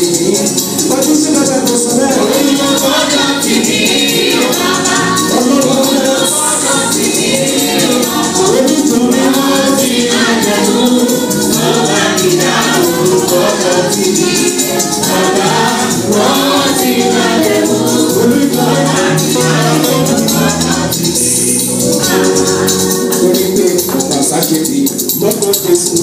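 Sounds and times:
women's choir singing gospel: 0.0 - 24.4
shaken hand percussion: 0.0 - 26.0.

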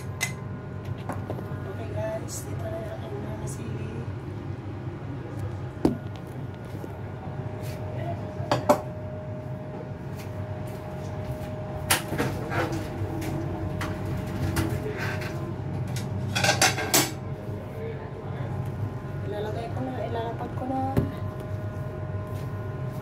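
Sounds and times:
steady hum: 0.0 - 23.0
dishes and utensils clinking: 16.3 - 17.2.

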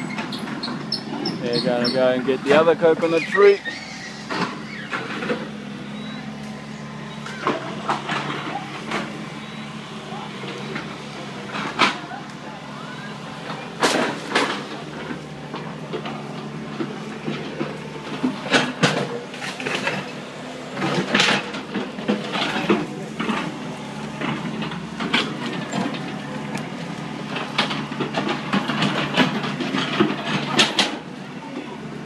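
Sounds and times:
excavator diesel engine running: 0.0 - 32.0
machine clanks and knocks: 20.8 - 31.1.

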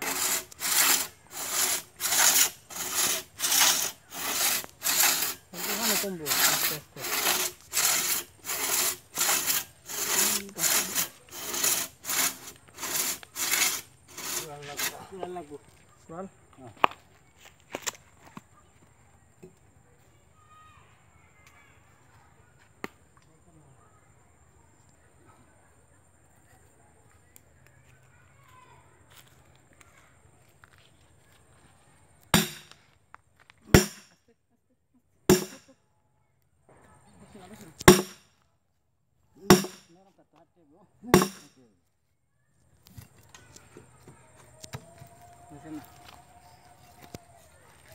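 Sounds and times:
hand saw rasping through wood: 0.0 - 15.3, 32.4 - 32.7, 33.7 - 34.0, 35.3 - 35.6, 37.8 - 38.2, 39.4 - 39.9, 41.1 - 41.5
hammer clanking on axe head: 39.5 - 39.8, 41.2 - 41.4.

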